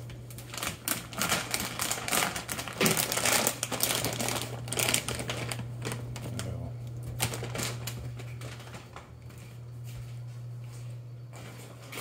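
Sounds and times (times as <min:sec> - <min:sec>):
steady low hum: 0:00.0 - 0:12.0
footsteps: 0:07.9 - 0:12.0.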